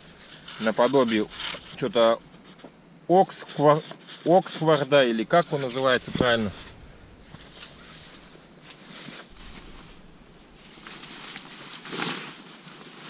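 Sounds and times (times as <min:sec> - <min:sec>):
tent fabric rustling: 0:03.4 - 0:13.0.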